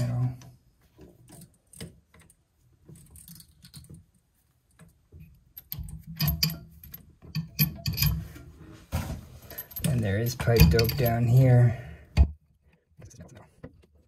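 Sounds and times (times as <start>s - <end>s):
metal fittings clicking and tapping: 4.7s - 8.3s, 9.5s - 11.4s.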